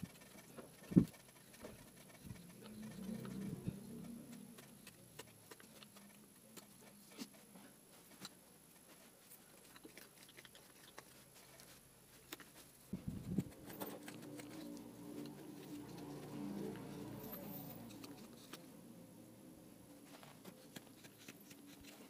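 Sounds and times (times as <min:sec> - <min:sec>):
low hum: 0:02.1 - 0:05.0.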